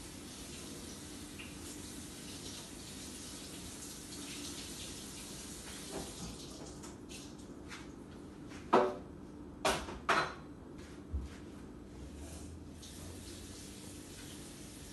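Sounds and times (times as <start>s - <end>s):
kitchen things knocking and ringing: 9.7s - 10.5s.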